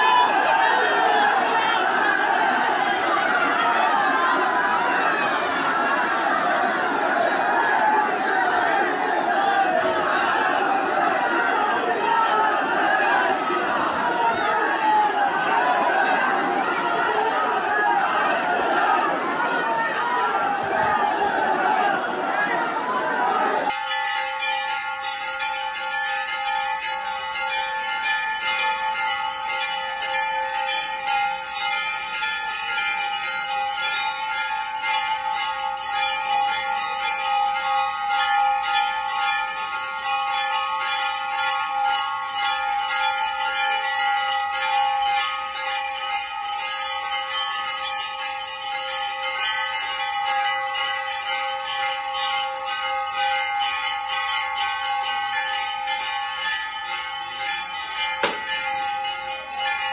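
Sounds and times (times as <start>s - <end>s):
brass bells ringing: 23.7s - 59.9s.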